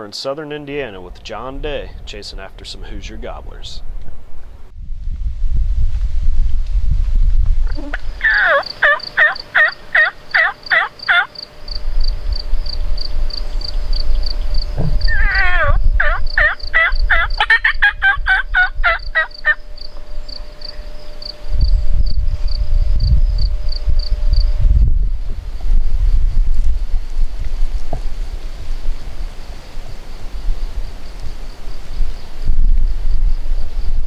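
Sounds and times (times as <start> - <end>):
wind rumbling on microphone: 0.8 - 8.7, 11.7 - 34.0
turkey gobbling: 7.7 - 11.3, 15.1 - 19.6.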